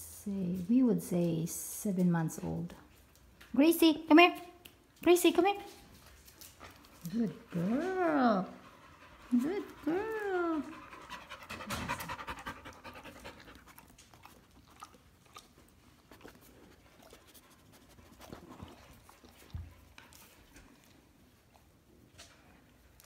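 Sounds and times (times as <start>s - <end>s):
dog panting: 6.4s - 21.8s.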